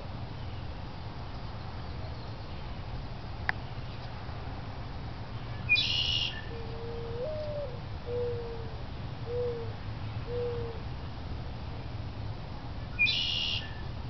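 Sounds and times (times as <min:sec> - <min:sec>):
dove cooing: 0:06.5 - 0:10.8
harsh buzzy bird call: 0:13.0 - 0:13.8.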